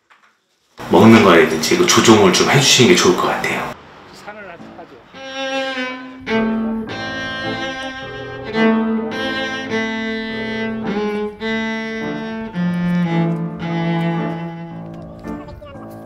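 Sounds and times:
slow melody of held notes: 4.5s - 15.5s.

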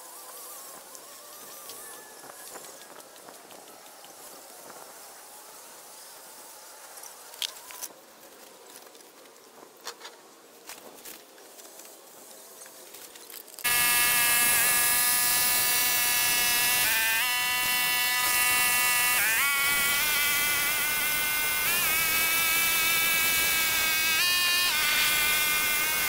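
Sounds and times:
tractor tiller whining drone: 13.6s - 26.0s.

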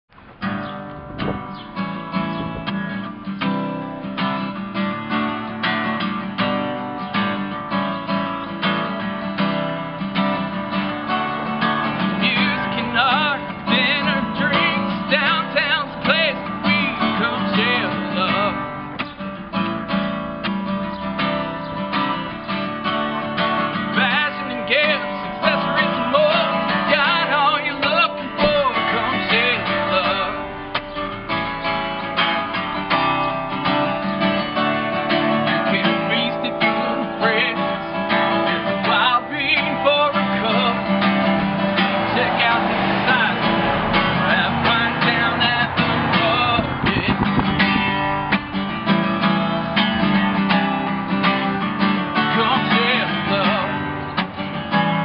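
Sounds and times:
strummed acoustic guitar: 0.1s - 55.0s
man singing: 11.9s - 18.8s, 23.8s - 30.7s, 35.3s - 47.8s, 52.1s - 54.0s.

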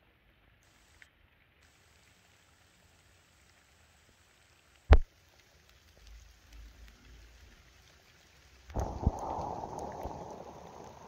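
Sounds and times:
faint steady rain: 0.0s - 11.0s
low rumble: 8.8s - 11.0s.

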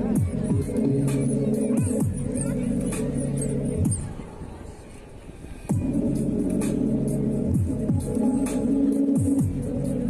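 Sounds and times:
dance music with sustained notes: 5.7s - 10.0s.

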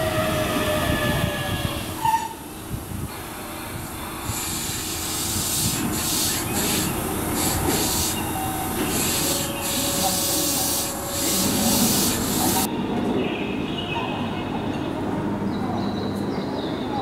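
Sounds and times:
compressed air hissing: 2.6s - 12.7s.

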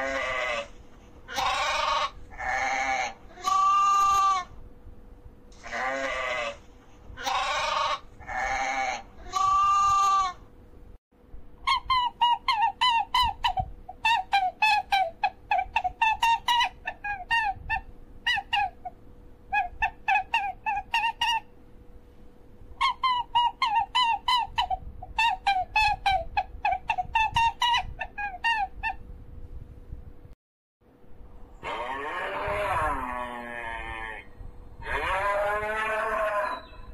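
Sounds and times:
sheep bleating: 1.3s - 4.5s, 5.6s - 6.6s, 31.6s - 36.6s.

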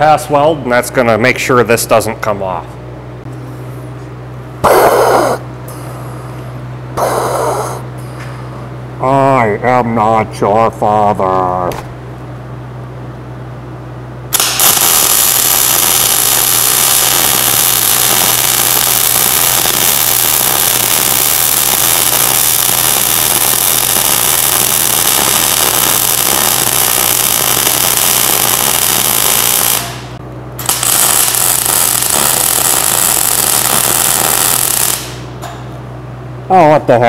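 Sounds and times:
welding arc crackling: 14.3s - 35.3s.

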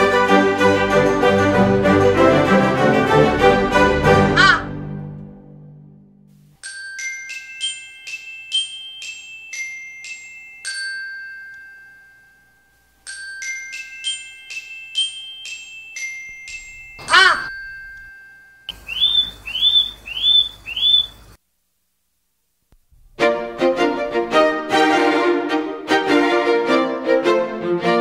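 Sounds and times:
glockenspiel-like jingle: 6.6s - 18.7s
short rising chirps: 18.7s - 21.4s.

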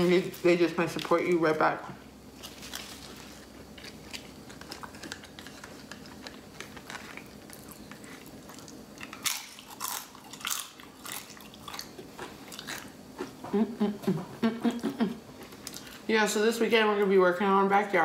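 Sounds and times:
chips crunching while chewed: 2.3s - 13.4s.

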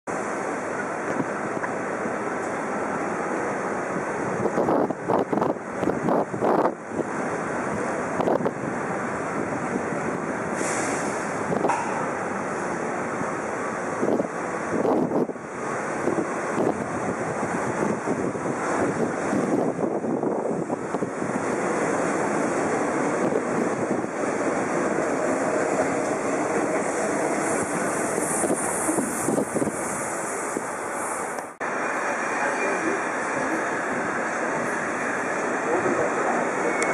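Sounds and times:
faint train whine: 0.1s - 36.9s
train wheels rumbling on rail: 0.1s - 36.9s
wind rushing on microphone: 2.9s - 31.6s
train hiss: 10.4s - 13.9s, 24.4s - 36.9s.

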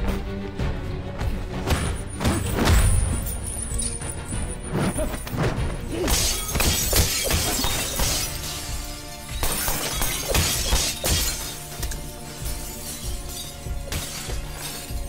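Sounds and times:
film music score: 0.0s - 15.0s
glass window panes shattering: 6.1s - 15.0s.

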